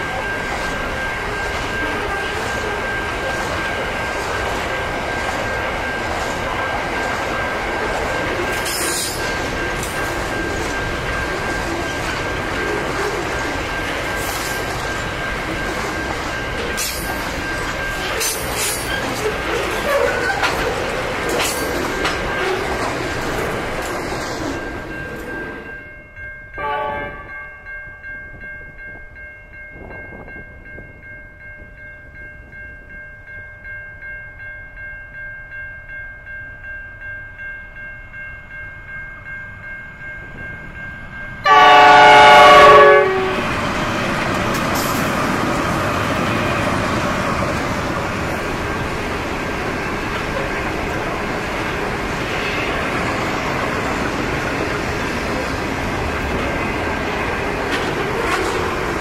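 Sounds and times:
steady pulsing ringing: 0.0 - 23.8
locomotives rumbling past: 0.0 - 25.6, 41.5 - 59.0
freight wagons rolling on rails: 0.0 - 25.7, 41.9 - 59.0
train horn blast: 26.6 - 27.4, 41.4 - 43.5.

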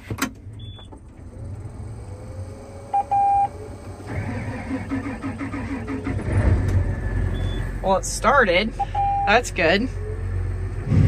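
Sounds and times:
diesel engine starter cranking: 0.0 - 7.7
engine rumble: 0.0 - 11.0
short warning beeps: 7.3 - 7.6, 8.7 - 9.4.

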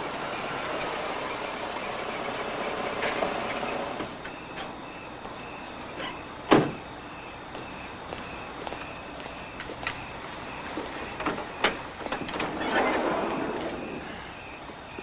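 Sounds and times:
van engine running: 0.0 - 15.0
car door slam: 6.5 - 6.8.

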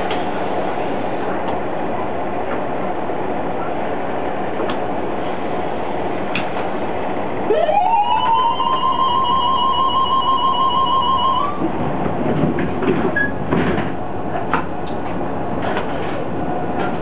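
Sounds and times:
railbus running noise: 0.0 - 17.0
train horn long note: 7.5 - 11.6.

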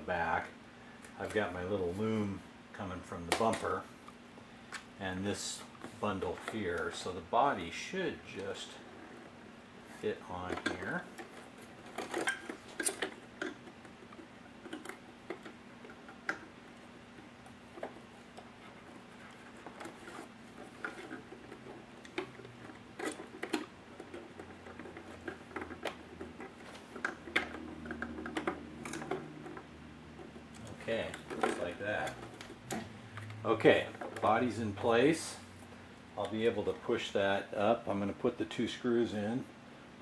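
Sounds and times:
faint steady hum: 0.0 - 40.0.

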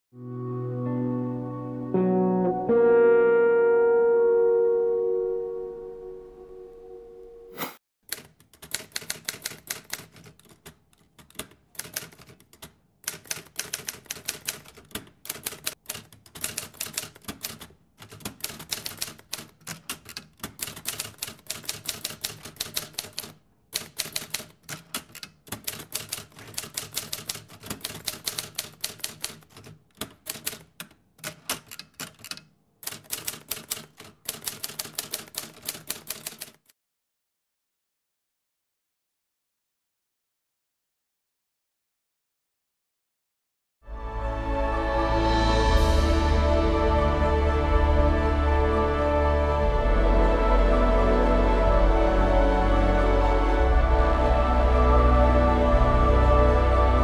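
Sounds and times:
typewriter keys clacking: 8.1 - 36.7.

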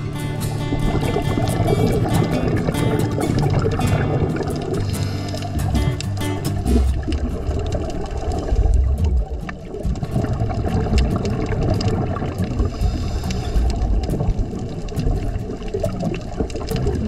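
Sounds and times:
muffled rushing of water underwater: 0.0 - 17.0.

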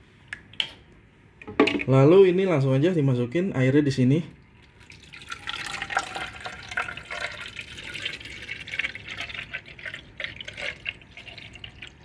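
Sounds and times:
water pouring into plastic tank: 4.6 - 12.0.

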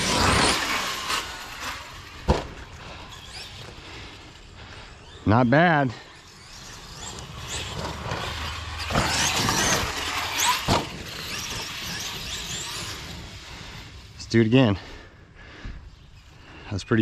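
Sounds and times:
toy truck electric motor whining: 0.0 - 14.2
sharp thumps: 2.2 - 2.7, 7.0 - 12.6.

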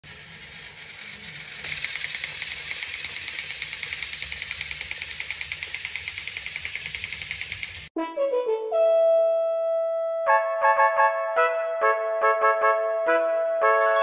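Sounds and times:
toy train motor whirring: 0.0 - 7.9
rapid even clicking: 1.6 - 7.9.

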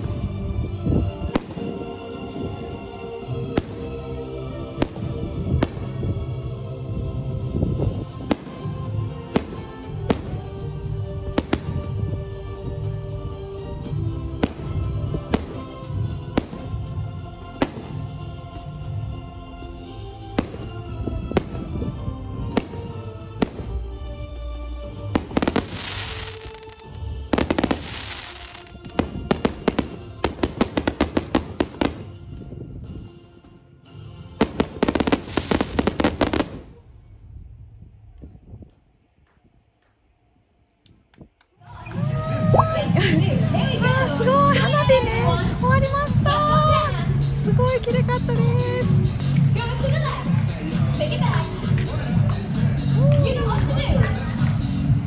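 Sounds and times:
fireworks bangs and crackling: 0.0 - 2.8, 3.5 - 4.0, 4.7 - 6.5, 7.5 - 13.0, 13.8 - 18.2, 20.3 - 23.9, 25.0 - 32.4, 34.4 - 36.8
music: 0.0 - 55.0.

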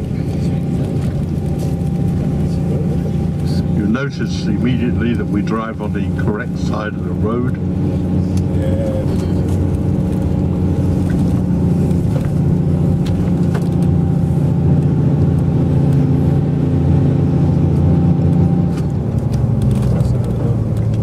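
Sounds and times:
road noise: 0.0 - 21.0
vehicle engine hum: 0.0 - 21.0.

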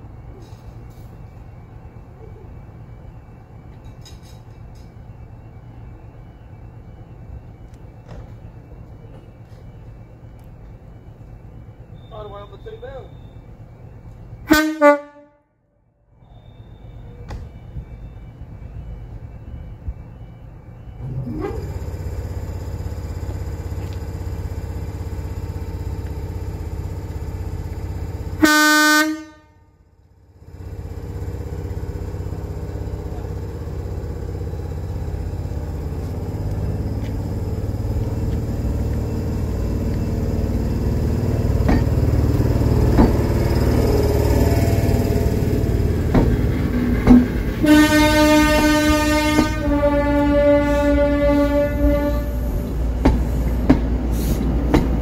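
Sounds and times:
train diesel engine rumbling: 0.0 - 55.0
train horn blast: 14.4 - 15.7, 28.4 - 29.8, 47.1 - 53.5.

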